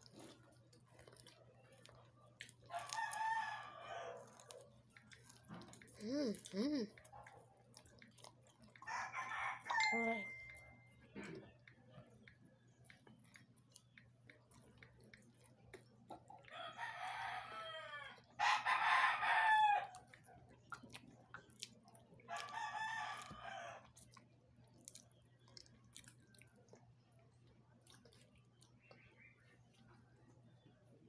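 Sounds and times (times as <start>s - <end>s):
rooster crowing: 2.7s - 4.3s, 8.8s - 9.9s, 16.5s - 20.0s.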